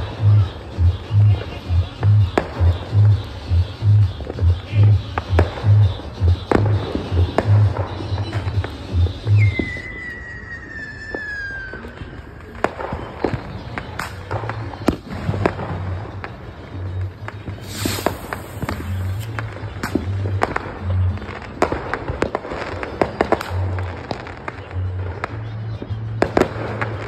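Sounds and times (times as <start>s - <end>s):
firework bangs and crackling: 0.0s - 27.0s
firework rocket whistle: 5.1s - 16.3s, 17.4s - 20.7s
firework hiss: 17.5s - 20.5s.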